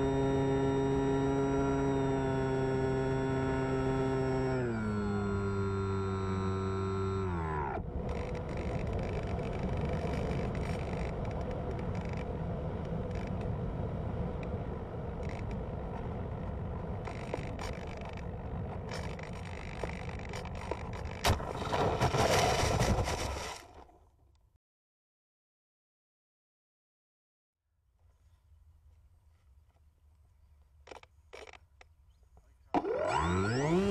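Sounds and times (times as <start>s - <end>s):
electric motor and propeller whining: 0.0s - 21.4s, 32.7s - 33.9s.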